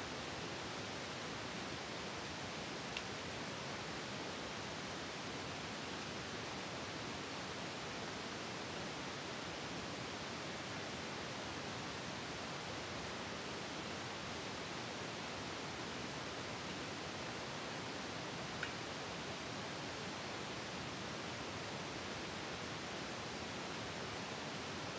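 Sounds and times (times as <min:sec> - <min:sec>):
steady hiss: 0:00.0 - 0:24.9.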